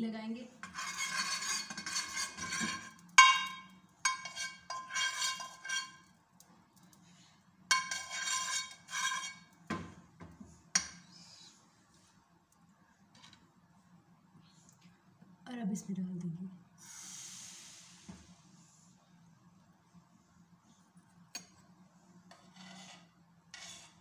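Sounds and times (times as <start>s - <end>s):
metal spoon scraping frying pan: 0.6s - 6.1s, 7.7s - 9.6s, 22.3s - 24.0s.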